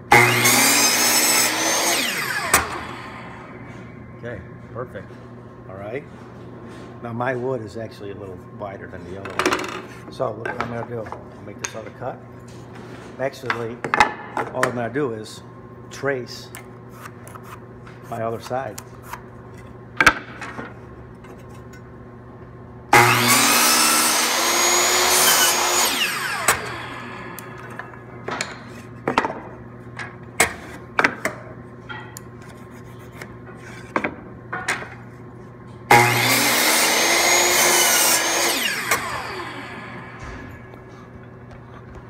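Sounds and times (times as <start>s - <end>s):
miter saw cutting wood: 0.1s - 3.6s, 22.9s - 27.8s, 35.9s - 40.7s.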